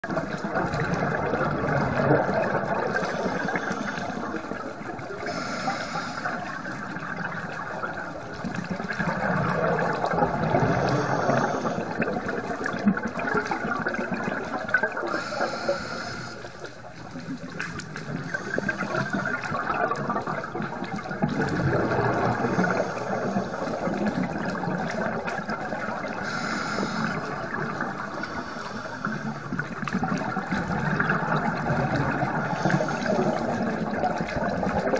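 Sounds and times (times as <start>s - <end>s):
underwater bubbling: 0.0s - 34.9s
regulator breathing: 3.0s - 4.5s, 5.2s - 6.6s, 15.1s - 16.8s, 18.2s - 19.5s, 26.2s - 29.6s.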